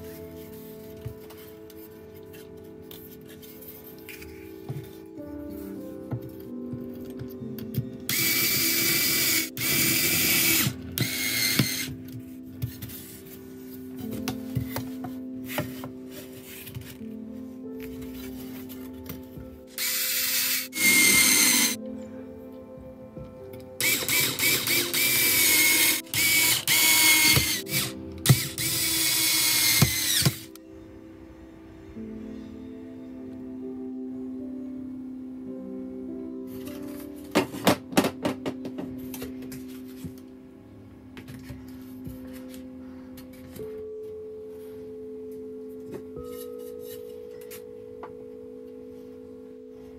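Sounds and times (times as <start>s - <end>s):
soft background music: 0.0s - 49.9s
cordless screwdriver driving screw: 8.1s - 11.9s, 19.8s - 21.8s, 23.8s - 30.6s.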